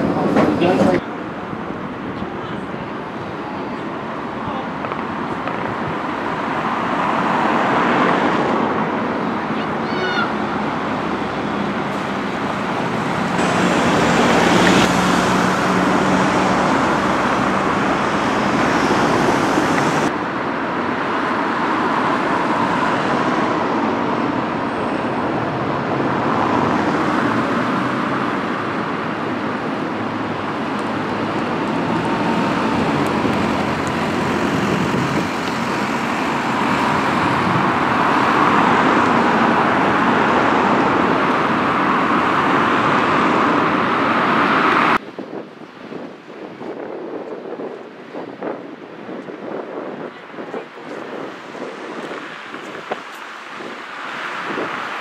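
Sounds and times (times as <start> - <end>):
cars and buses passing: 0.0 - 55.0
bus engine driving past: 5.3 - 20.2, 21.4 - 45.0.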